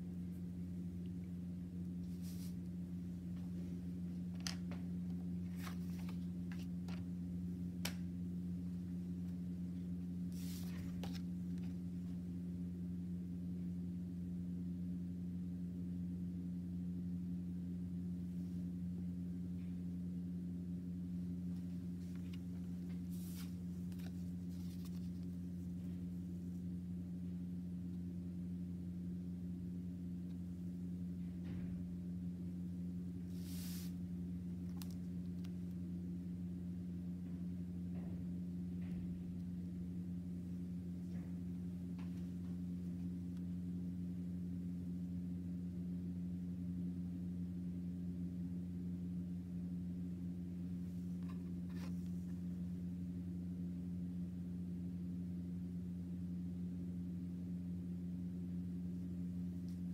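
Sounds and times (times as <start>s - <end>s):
steady low hum: 0.0s - 59.9s
paper rustles and taps: 4.3s - 7.1s, 22.0s - 25.3s.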